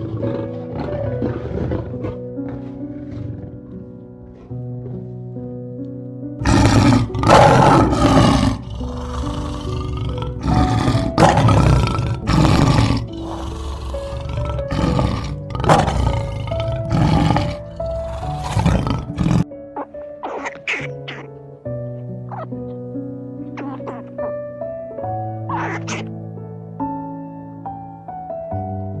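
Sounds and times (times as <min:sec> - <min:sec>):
lion roaring: 0:00.0 - 0:03.9, 0:06.4 - 0:19.4
background music with sustained notes: 0:00.0 - 0:29.0.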